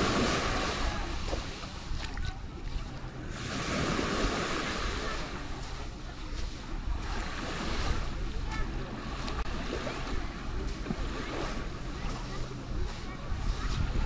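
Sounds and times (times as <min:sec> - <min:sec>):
small waves breaking on beach: 0:00.0 - 0:14.0.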